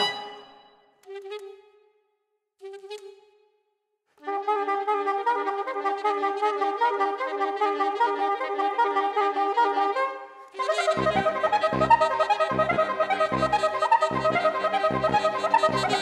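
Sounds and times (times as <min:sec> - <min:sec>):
saxophones playing rhythmic notes: 0:00.0 - 0:00.5, 0:10.6 - 0:16.0.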